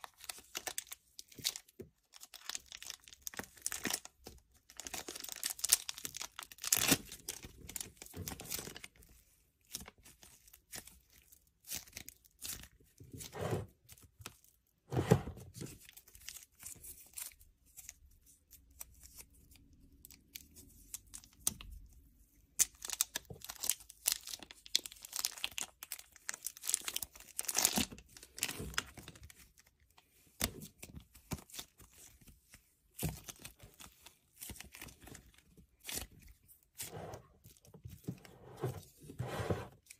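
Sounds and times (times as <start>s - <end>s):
plastic packaging crinkling: 0.0s - 8.9s, 22.8s - 29.7s
slime crackling and tearing: 0.0s - 8.9s, 22.6s - 29.7s.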